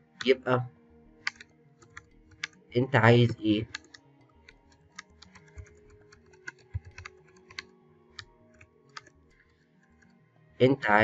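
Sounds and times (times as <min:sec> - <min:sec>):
faint music: 0:00.0 - 0:11.0
computer keyboard typing: 0:01.2 - 0:02.6, 0:03.2 - 0:09.2.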